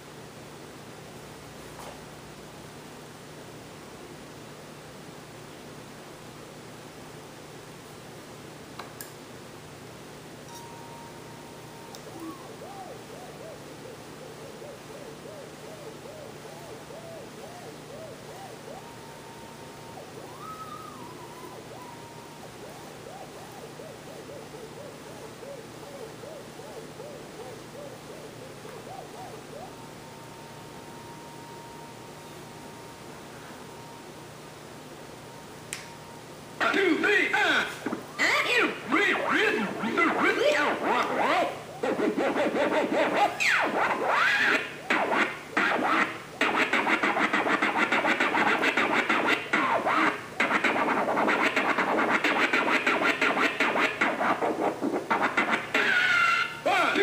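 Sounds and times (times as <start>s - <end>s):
turntable scratching a tone: 37.9s - 57.0s.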